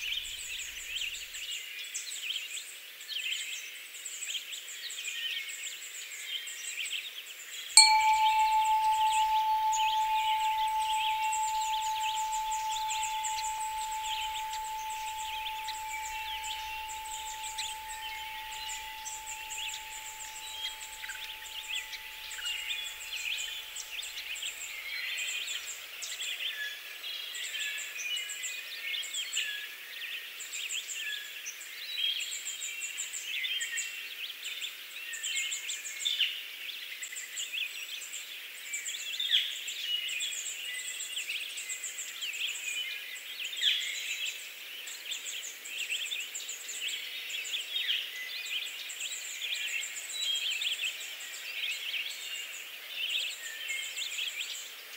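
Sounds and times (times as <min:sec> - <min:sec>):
faint steady tone: 0:07.8 - 0:24.6.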